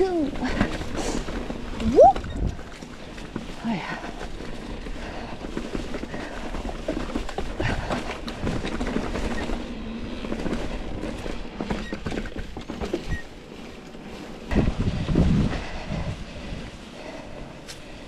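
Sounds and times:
tyres crunching over leaves: 0.0 - 11.8
wind rumble on microphone: 0.0 - 13.3, 14.4 - 18.0
bike rattling and knocking: 0.0 - 17.2.

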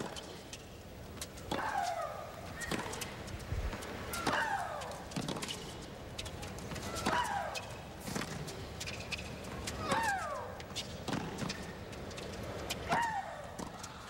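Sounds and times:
racket hitting tennis ball: 3.7 - 5.7, 6.7 - 9.0, 9.8 - 13.8.

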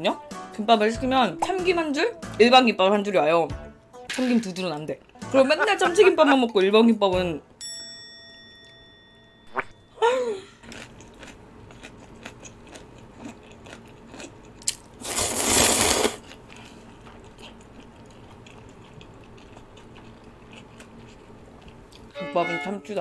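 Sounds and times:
quiet chewing: 10.6 - 14.8, 16.2 - 22.1
loud noodle slurp: 15.0 - 16.2.

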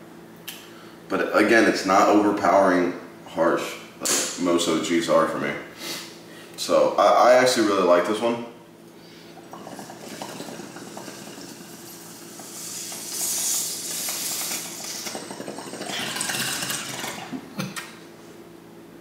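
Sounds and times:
water gurgling in a bong: 9.3 - 17.8.

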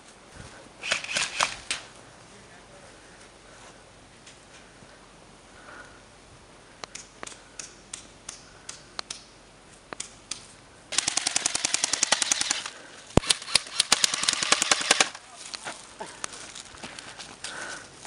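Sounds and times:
airsoft gun full-auto bursts: 0.8 - 1.6, 10.9 - 15.2.

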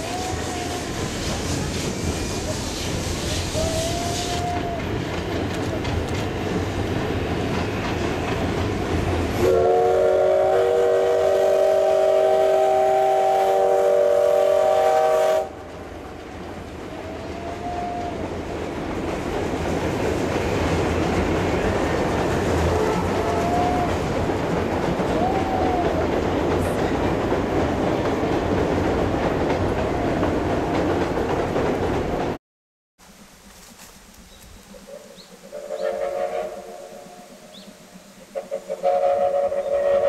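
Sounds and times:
steam locomotive whistle: 0.0 - 5.0, 9.4 - 15.6, 17.0 - 18.3, 22.6 - 24.2, 35.5 - 37.7, 38.3 - 40.0
train rumbling over steel bridge: 0.0 - 32.4, 33.1 - 40.0.

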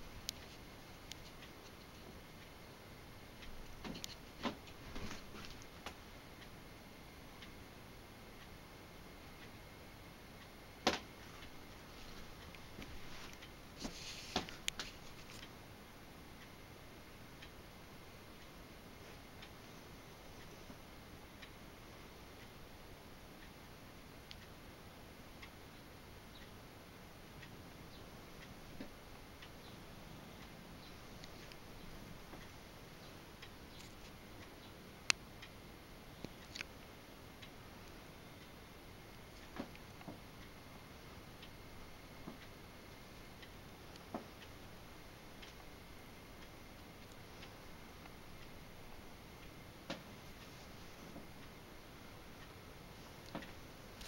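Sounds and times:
room hiss: 0.0 - 54.0
soft rustle: 3.9 - 5.9, 11.2 - 15.6, 50.0 - 51.6.

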